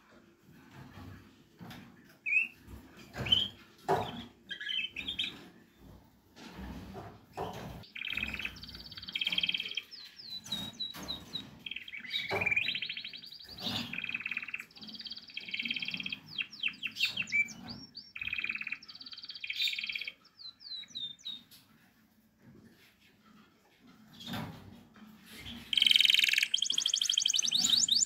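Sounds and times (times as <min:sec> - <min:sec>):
canary singing trills: 0:02.2 - 0:02.6, 0:03.2 - 0:05.5, 0:07.8 - 0:21.5, 0:25.4 - 0:28.0.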